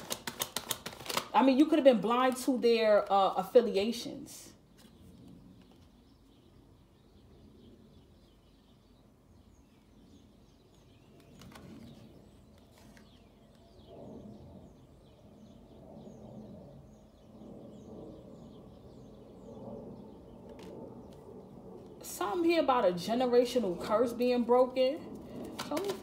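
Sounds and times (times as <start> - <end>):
cards clicking: 0.0 - 1.3, 25.5 - 26.0
faint bird chirping: 4.5 - 22.0.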